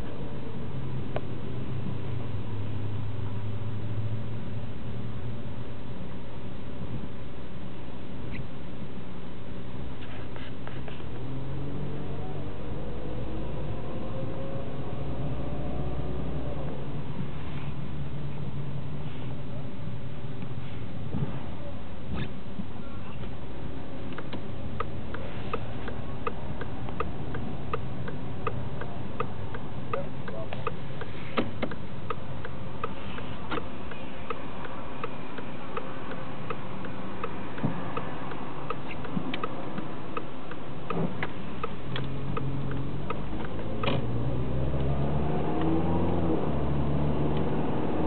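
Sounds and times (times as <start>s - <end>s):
car engine accelerating: 11.0s - 18.8s, 23.2s - 48.0s
car cabin noise: 16.4s - 48.0s.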